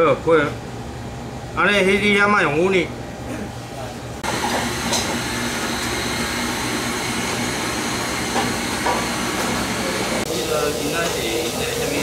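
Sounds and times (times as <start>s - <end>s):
kitchen machinery rushing: 4.2s - 12.0s.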